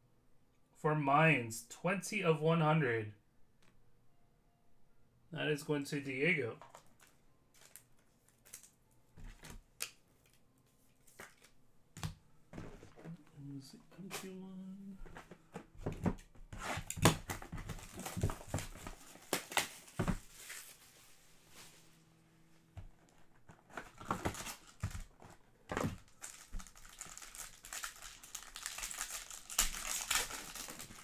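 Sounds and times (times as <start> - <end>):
packaging crinkling and clicking: 6.6 - 10.4, 23.4 - 31.0
foil pack tearing: 26.2 - 31.0.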